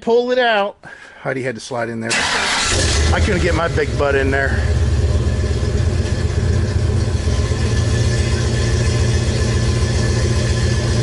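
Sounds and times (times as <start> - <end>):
truck engine idling: 2.3 - 11.0.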